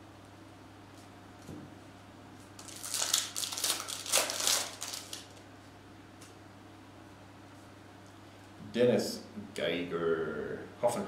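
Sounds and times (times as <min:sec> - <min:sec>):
foil wrapper crinkling: 0:02.6 - 0:05.4.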